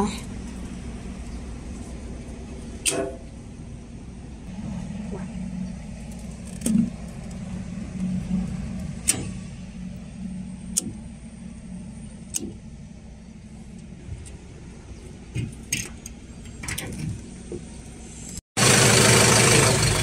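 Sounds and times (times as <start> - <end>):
diesel generator humming: 0.0 - 20.0
circuit breakers clicking: 9.0 - 9.4, 10.7 - 11.0, 12.3 - 12.6.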